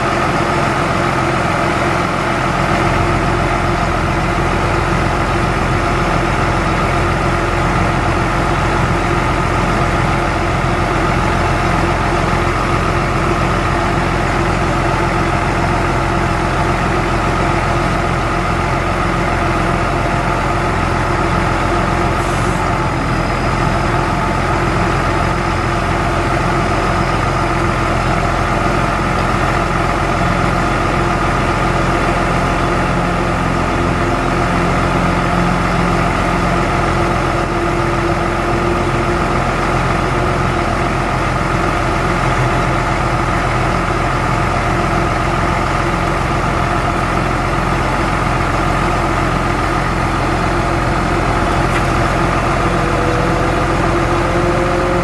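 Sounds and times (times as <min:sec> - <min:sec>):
truck engine running: 0:00.0 - 0:55.0.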